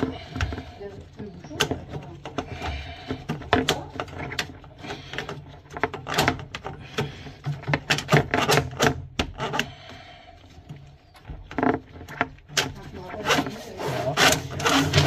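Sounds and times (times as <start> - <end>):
cable clicking against pipe: 0.0 - 13.4
drain snake scraping in pipe: 11.5 - 15.0.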